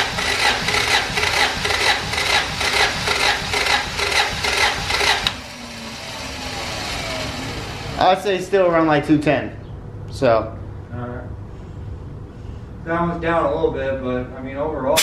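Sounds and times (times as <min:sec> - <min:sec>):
engine cranking on starter motor: 0:00.0 - 0:08.3.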